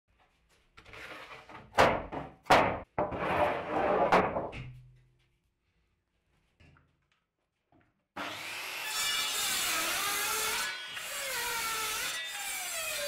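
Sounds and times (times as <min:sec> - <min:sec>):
sharp wooden knocks: 0:01.8 - 0:02.9
wood scraping on wood: 0:03.0 - 0:04.5.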